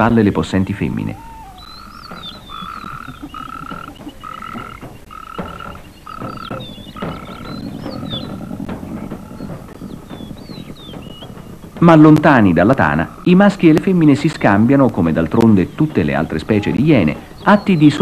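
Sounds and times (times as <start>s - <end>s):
high repeated animal call: 0.9s - 11.5s, 12.8s - 13.4s.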